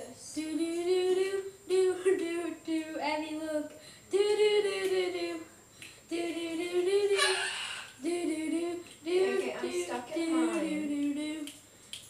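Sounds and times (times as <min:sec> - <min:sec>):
cockatoo vocalizing: 0:07.1 - 0:08.0.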